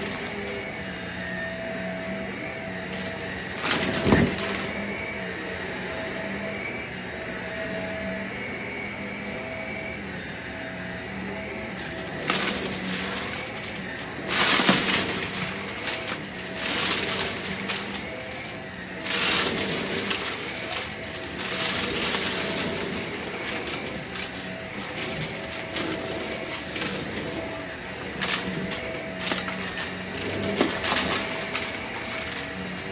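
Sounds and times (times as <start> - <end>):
debris rattling through nozzle: 0.0 - 1.3, 2.8 - 5.2, 11.7 - 32.9
vacuum cleaner motor hum: 0.0 - 32.9.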